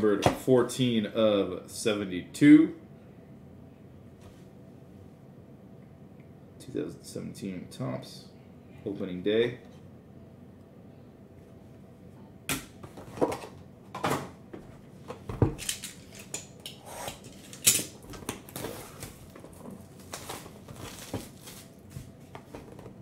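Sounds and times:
plastic shrink-wrap crinkling and tearing: 18.0s - 22.0s.

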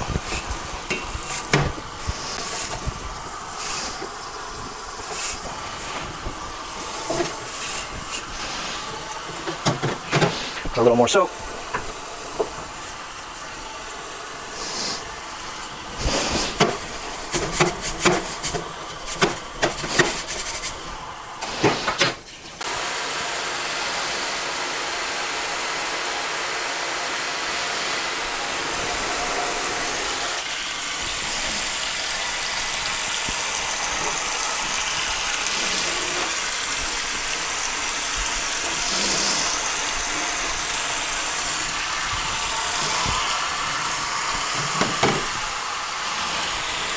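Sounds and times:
water spraying into a sink: 0.0s - 46.9s.

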